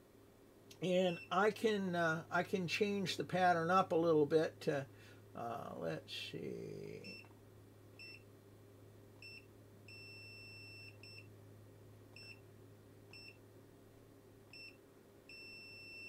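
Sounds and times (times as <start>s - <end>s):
long beeps: 9.2s - 11.3s, 14.6s - 16.0s.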